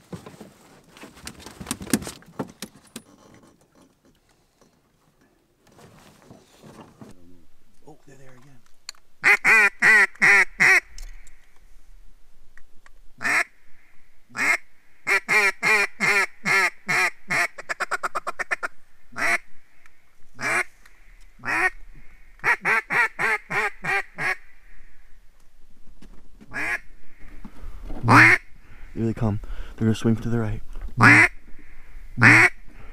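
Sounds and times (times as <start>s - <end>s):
duck call chatter: 9.2s - 10.9s, 21.4s - 21.7s, 28.1s - 28.4s, 31.0s - 31.4s, 32.2s - 32.6s
duck call quacks: 9.2s - 10.9s, 13.2s - 13.5s, 14.3s - 19.4s, 20.4s - 20.7s, 21.4s - 21.8s, 22.4s - 24.4s, 26.5s - 26.8s, 28.1s - 28.5s, 31.0s - 31.4s, 32.2s - 32.6s.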